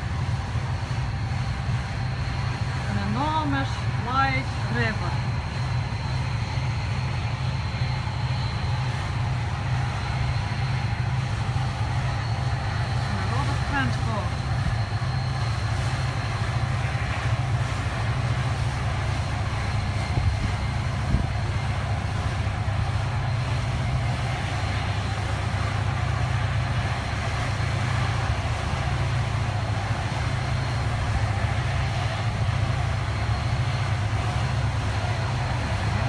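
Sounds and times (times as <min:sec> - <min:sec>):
boat engine drone: 0:00.0 - 0:36.0
faint high whine: 0:00.0 - 0:36.0.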